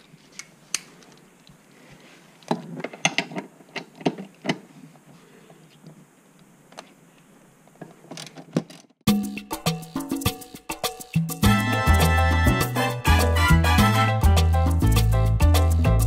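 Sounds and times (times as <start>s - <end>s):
loud latin music: 9.1s - 16.0s.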